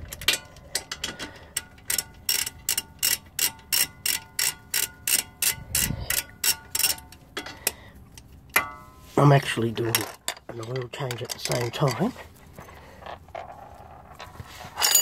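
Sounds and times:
socket ratchet clicking: 0:00.2 - 0:07.2.

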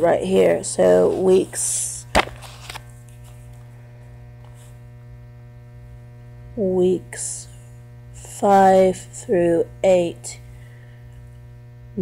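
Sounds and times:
woman's voice: 0:00.0 - 0:02.1, 0:06.6 - 0:07.6, 0:08.2 - 0:10.4
electrical mains hum: 0:00.0 - 0:12.0.

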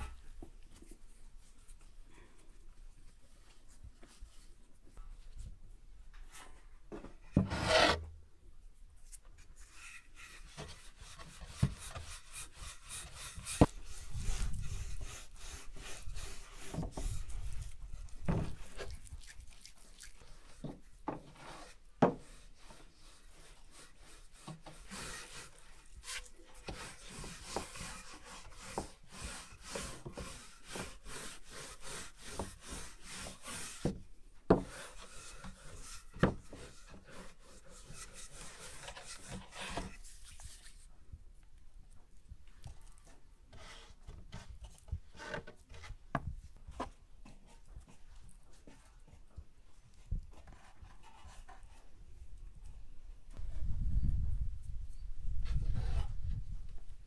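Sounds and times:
rubbing and scraping on wooden board: 0:06.3 - 0:08.1, 0:09.1 - 0:19.7, 0:20.4 - 0:40.9, 0:42.8 - 0:49.2, 0:50.0 - 0:51.9.

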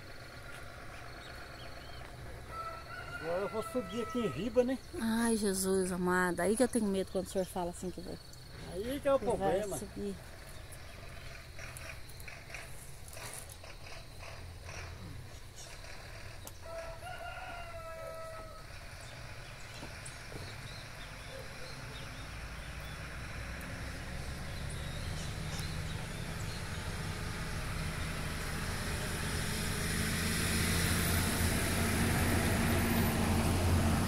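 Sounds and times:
road vehicle engine hum: 0:00.0 - 0:34.0
rooster crowing: 0:02.4 - 0:04.7, 0:16.6 - 0:19.1.

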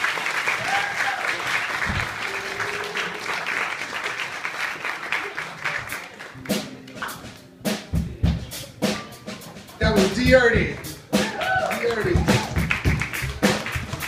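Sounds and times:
audience applause: 0:00.0 - 0:07.1, 0:10.8 - 0:14.0
drum kit hits: 0:06.4 - 0:14.0.

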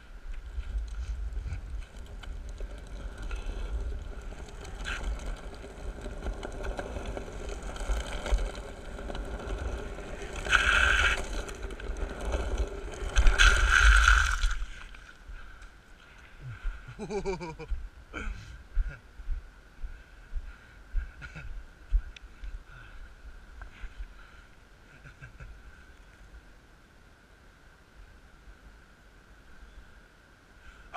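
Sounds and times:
longboard wheels rolling on asphalt: 0:00.0 - 0:16.3
hissing scraping bursts: 0:10.0 - 0:14.6.

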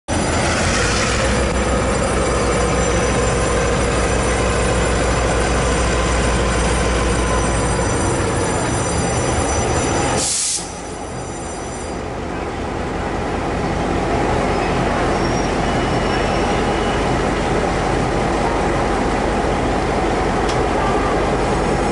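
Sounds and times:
diesel locomotive engine: 0:00.0 - 0:21.9
steel wheels on rails: 0:00.1 - 0:12.1
high-pitched wheel squeal: 0:00.3 - 0:12.0, 0:15.0 - 0:17.2.

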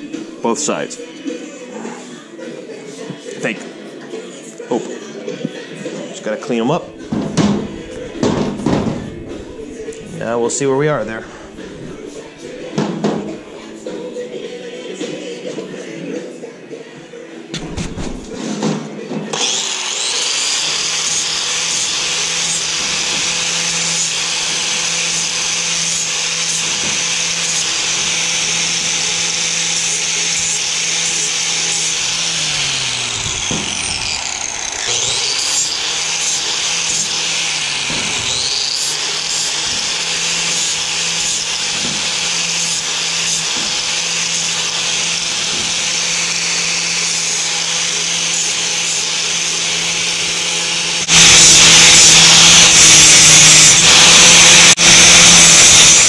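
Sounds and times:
angle grinder grinding steel: 0:06.3 - 0:13.9, 0:19.3 - 0:56.0.

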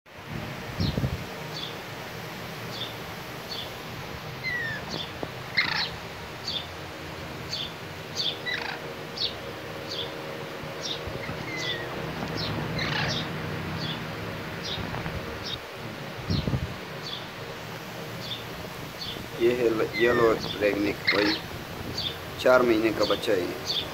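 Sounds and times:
parakeets chirping: 0:00.7 - 0:23.9
parakeet long call: 0:02.7 - 0:17.3, 0:18.2 - 0:22.3.

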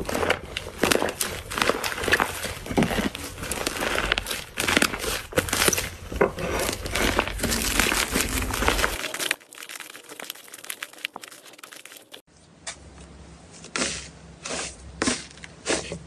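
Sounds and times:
slime crackling and popping: 0:00.0 - 0:06.1, 0:06.7 - 0:12.3.

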